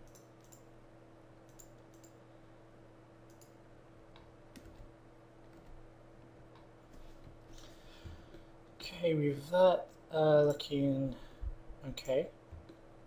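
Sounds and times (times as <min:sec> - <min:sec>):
computer mouse clicking: 0:00.0 - 0:00.7, 0:01.4 - 0:02.2, 0:03.3 - 0:04.9
faint low hum: 0:00.0 - 0:13.0.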